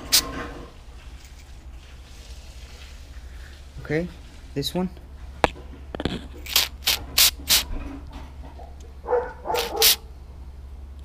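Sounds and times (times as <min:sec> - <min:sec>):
aerosol can spraying: 0:06.4 - 0:07.7, 0:09.6 - 0:10.0
dog barking: 0:09.0 - 0:10.1.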